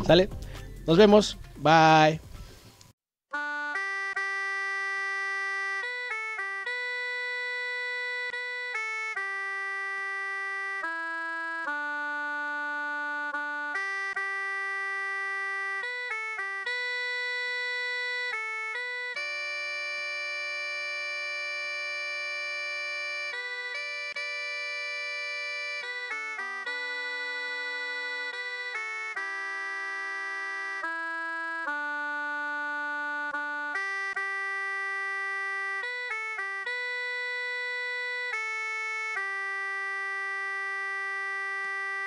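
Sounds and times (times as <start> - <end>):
instrumental music with held chords: 0.0 - 2.5, 3.3 - 42.0.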